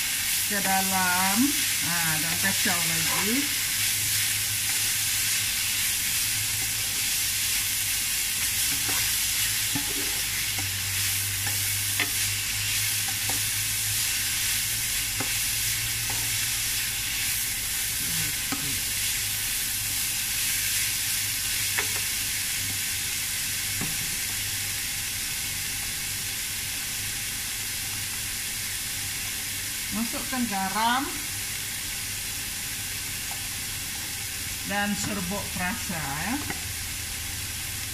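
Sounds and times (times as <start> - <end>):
vegetables sizzling in a wok: 0.0 - 37.9
spatula scraping and tapping pan: 8.6 - 9.1, 9.7 - 10.8, 11.4 - 12.3, 15.1 - 15.4.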